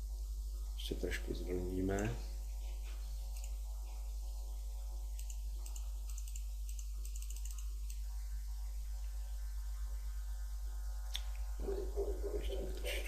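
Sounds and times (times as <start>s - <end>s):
low electrical hum: 0.0s - 13.0s
faint rapid computer clicks: 1.8s - 4.1s, 4.9s - 8.3s.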